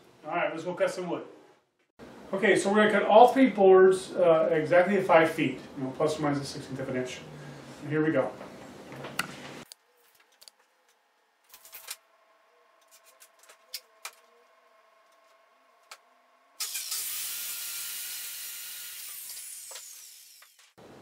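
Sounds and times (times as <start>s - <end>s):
circular saw cutting wood: 16.6s - 20.8s.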